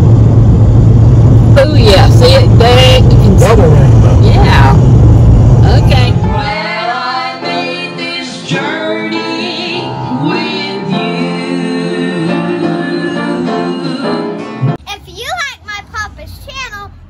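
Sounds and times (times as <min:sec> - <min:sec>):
woman singing: 0:05.8 - 0:09.8.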